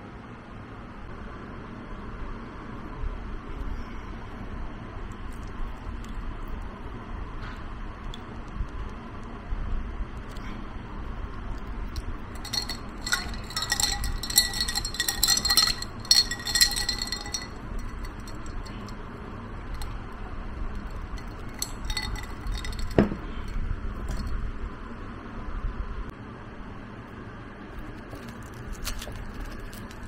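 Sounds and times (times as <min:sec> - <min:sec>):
ice cubes clinking in glass: 0:12.3 - 0:18.9, 0:19.7 - 0:20.0, 0:20.8 - 0:23.2, 0:28.1 - 0:30.0.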